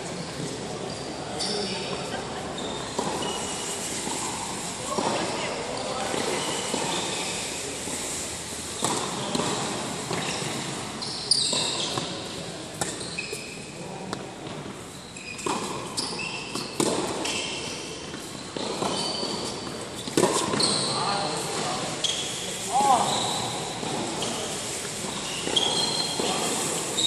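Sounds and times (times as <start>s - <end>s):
sneaker squeaks on court: 0.8s - 3.8s, 5.7s - 7.4s, 8.8s - 13.8s, 14.9s - 27.0s
tennis balls struck by rackets: 8.7s - 10.8s, 11.4s - 13.0s, 15.4s - 21.9s.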